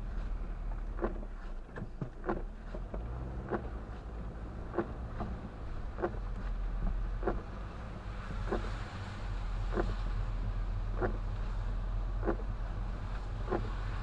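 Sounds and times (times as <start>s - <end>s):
road and engine hum: 0.0s - 14.0s
windshield wipers sweeping: 0.0s - 14.0s.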